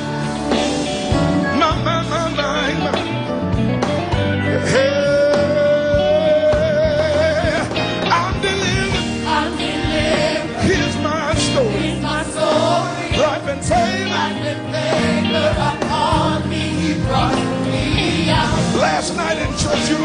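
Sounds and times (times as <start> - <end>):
band playing: 0.0 - 20.0
people singing: 4.4 - 20.0.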